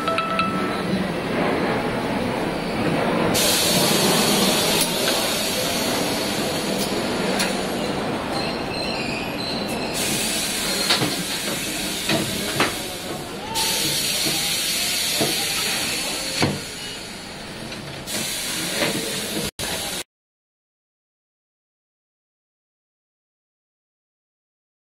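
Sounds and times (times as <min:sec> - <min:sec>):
compressed air hissing: 0:03.4 - 0:06.9, 0:10.0 - 0:13.0, 0:18.1 - 0:19.9.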